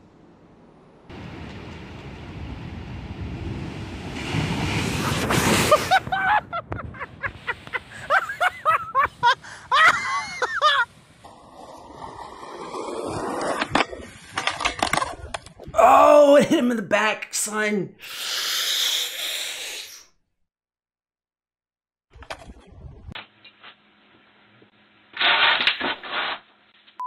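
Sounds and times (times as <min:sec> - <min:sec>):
skateboard wheels rolling on concrete: 0:00.0 - 0:15.7.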